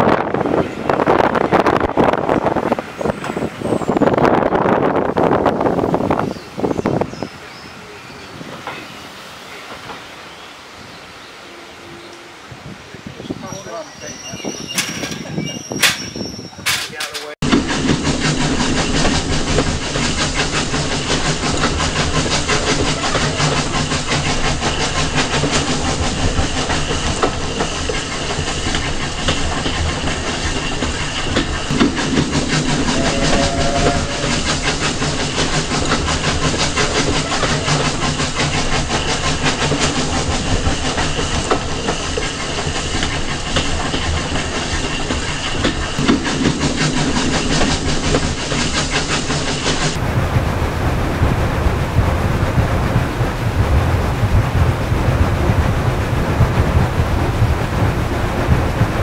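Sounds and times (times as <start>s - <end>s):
steam train rumbling: 0.0s - 59.0s
wheels clattering over rail joints: 13.5s - 50.0s.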